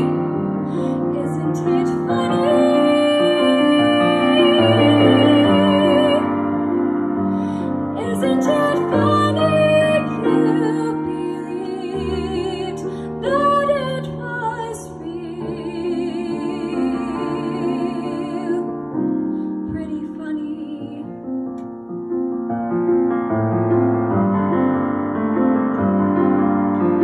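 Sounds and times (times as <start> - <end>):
woman singing with vibrato: 0.0 - 6.4, 8.0 - 18.7, 19.6 - 21.1
piano accompaniment: 0.0 - 27.0.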